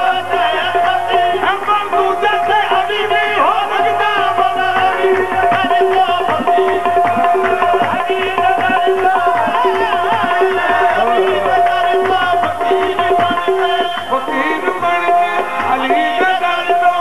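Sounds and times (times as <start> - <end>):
harmonium holding notes: 0.0 - 17.0
man singing: 0.0 - 17.0
tabla strokes: 0.0 - 17.0.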